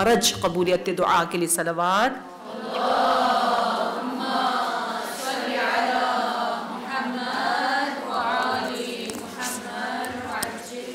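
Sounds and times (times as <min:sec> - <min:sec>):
group chanting in unison: 0:02.3 - 0:10.9.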